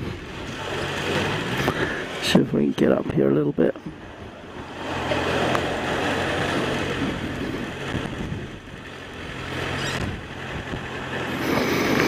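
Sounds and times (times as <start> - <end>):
motorcycle engine running: 0.0 - 2.6, 3.9 - 12.0
wind noise on microphone: 3.8 - 12.0.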